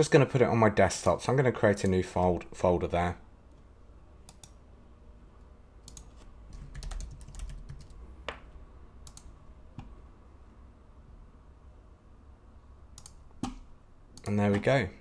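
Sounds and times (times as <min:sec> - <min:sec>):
computer keyboard typing: 0:05.8 - 0:08.0.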